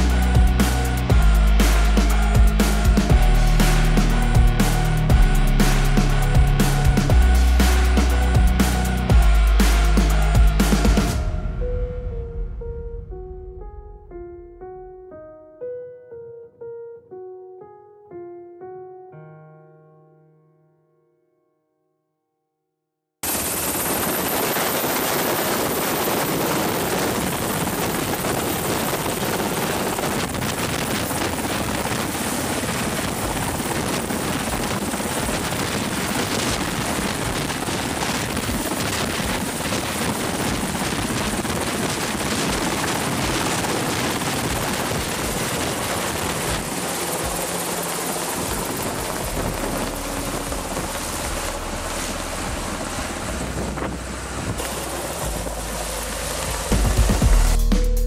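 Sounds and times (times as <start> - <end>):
helicopter rotor and turbine rush: 0.0 - 11.4, 23.2 - 57.6
thin high whine: 0.0 - 12.6, 23.2 - 58.0.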